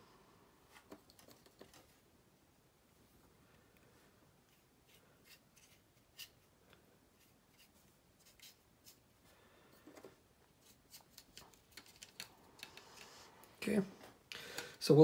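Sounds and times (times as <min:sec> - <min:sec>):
plastic part being handled: 0:09.8 - 0:13.1.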